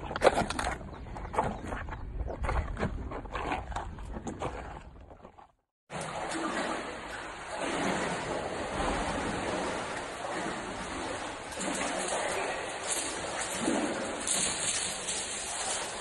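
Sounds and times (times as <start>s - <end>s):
running water rushing: 5.9s - 16.0s.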